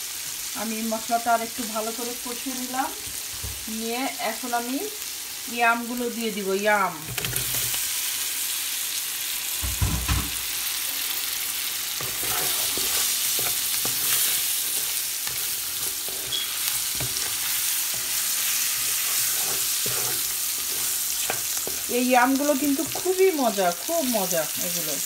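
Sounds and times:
masala sizzling in hot oil: 0:00.0 - 0:25.0
wooden spatula scraping and stirring: 0:12.0 - 0:23.9.

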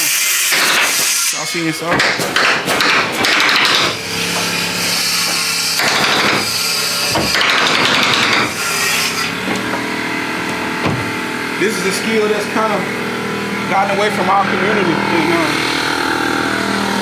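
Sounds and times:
tool noise: 0:00.0 - 0:17.0
steady hum: 0:00.8 - 0:17.0
nailing on wooden roof: 0:01.9 - 0:04.5, 0:05.8 - 0:06.5, 0:07.1 - 0:08.6.

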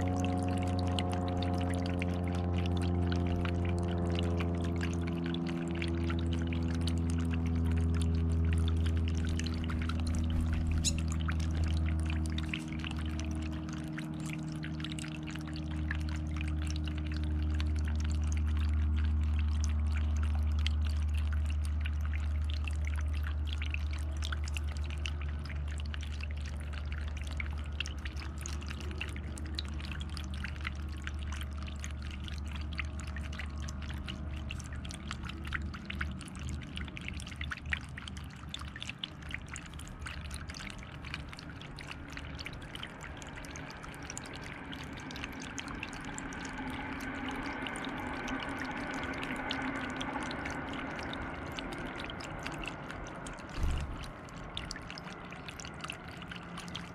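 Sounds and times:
low steady hum: 0:00.0 - 0:56.9
water trickling over stones: 0:00.0 - 0:56.9.

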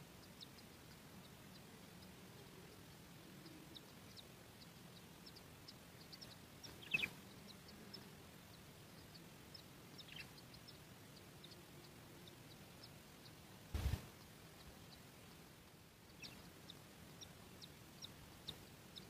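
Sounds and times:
low background hiss: 0:00.0 - 0:19.0
high bird chirps: 0:06.0 - 0:07.4, 0:10.0 - 0:10.4.

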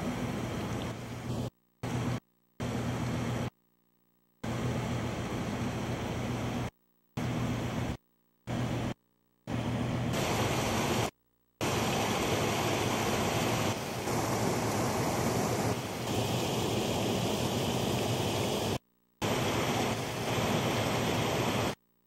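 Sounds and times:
floodwater rushing: 0:10.2 - 0:21.7.

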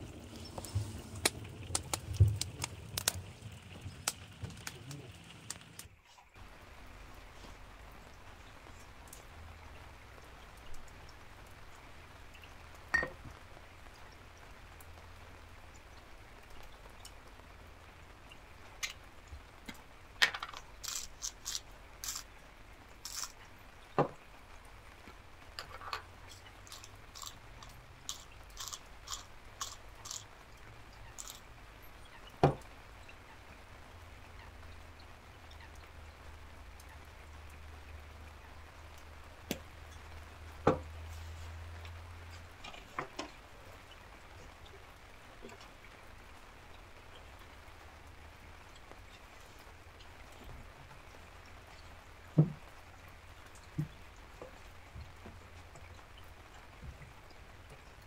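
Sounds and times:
spice grinder crunchy clicks: 0:20.8 - 0:22.2, 0:23.0 - 0:23.3, 0:26.7 - 0:30.2, 0:31.2 - 0:31.4.

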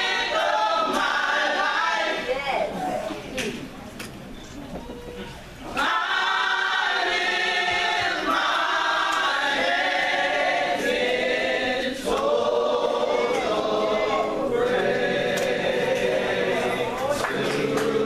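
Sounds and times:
gospel group singing in harmony: 0:00.0 - 0:02.4, 0:05.7 - 0:18.0.

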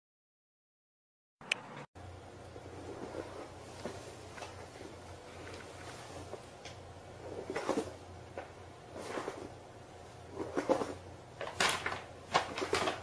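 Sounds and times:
paper bag rustling: 0:10.3 - 0:13.0.

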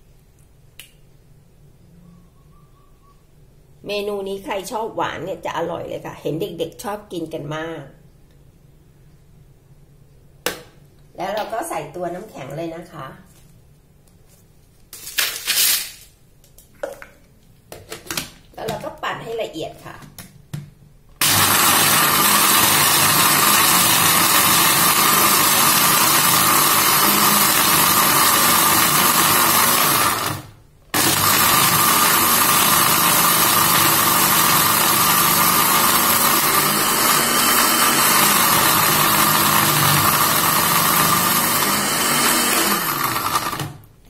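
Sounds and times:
blender crushing ice: 0:21.2 - 0:43.8.

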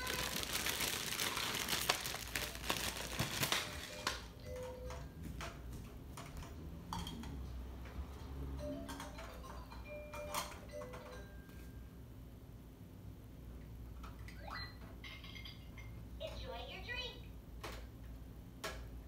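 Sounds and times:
plastic toy pieces clattering: 0:00.0 - 0:04.2.

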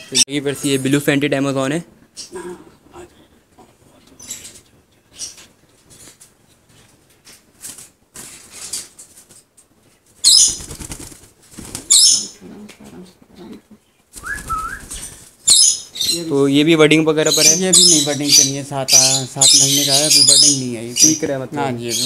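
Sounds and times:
parrot wings flapping: 0:07.2 - 0:09.5, 0:10.1 - 0:12.3, 0:14.1 - 0:15.4.

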